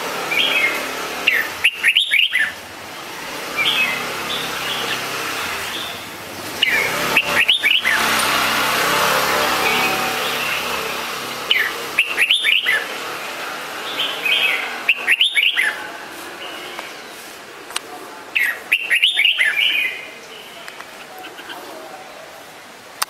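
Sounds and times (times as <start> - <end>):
bird chirping: 0.2 - 17.4, 18.3 - 22.1.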